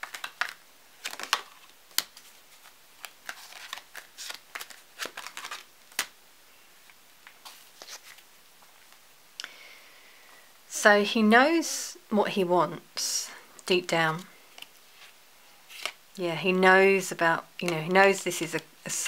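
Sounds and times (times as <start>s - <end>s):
cards being shuffled: 0.0s - 6.2s, 7.2s - 9.0s, 14.2s - 16.0s.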